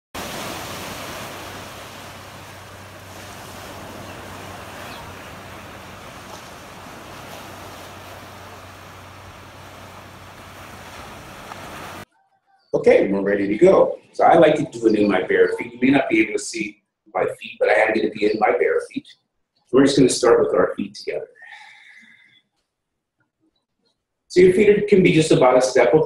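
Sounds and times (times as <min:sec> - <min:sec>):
ocean surf breaking: 0:00.1 - 0:12.1.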